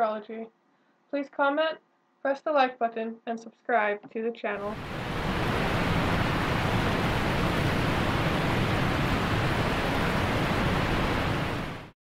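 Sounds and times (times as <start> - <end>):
steady rushing noise: 4.6 - 12.0.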